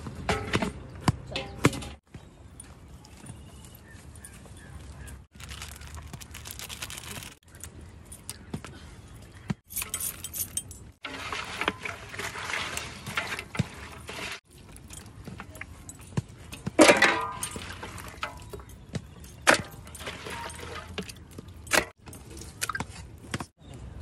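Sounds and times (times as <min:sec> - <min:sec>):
bracelets and rings jingling: 0:02.4 - 0:08.4, 0:09.6 - 0:11.0, 0:17.4 - 0:22.9.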